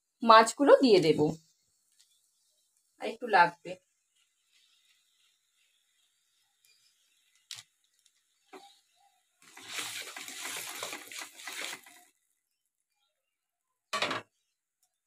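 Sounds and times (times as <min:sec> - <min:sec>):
metal spatula scraping pan: 0:09.4 - 0:12.0
liquid sloshing: 0:09.4 - 0:12.2.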